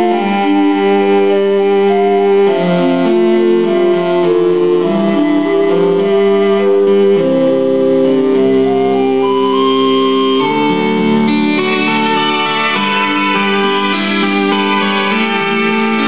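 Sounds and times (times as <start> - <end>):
slow melody over sustained chords: 0.0 - 16.0.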